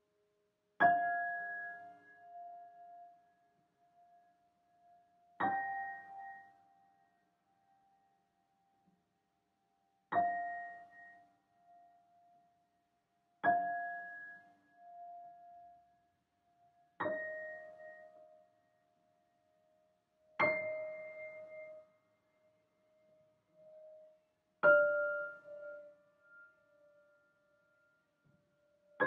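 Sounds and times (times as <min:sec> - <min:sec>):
slow piano chords: 0:05.3 - 0:06.8, 0:10.2 - 0:11.2, 0:17.0 - 0:18.5, 0:20.3 - 0:27.3.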